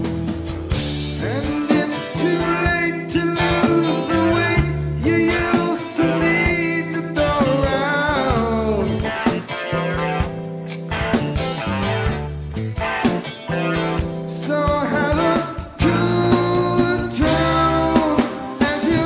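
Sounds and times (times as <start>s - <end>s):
drum kit: 0.0s - 19.0s
guitars: 0.0s - 19.0s
man singing: 1.2s - 9.3s, 14.3s - 19.0s.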